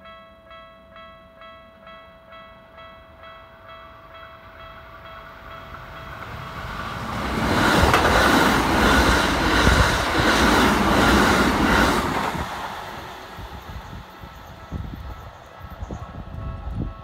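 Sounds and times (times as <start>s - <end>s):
electric train passing: 0.0s - 17.0s
wheels clacking over rail joints: 5.7s - 13.2s.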